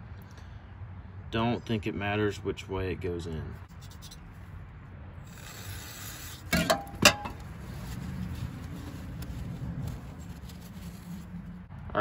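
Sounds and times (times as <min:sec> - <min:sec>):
metal can knocking down: 0:06.5 - 0:07.4
paper towel rubbing: 0:07.4 - 0:11.6.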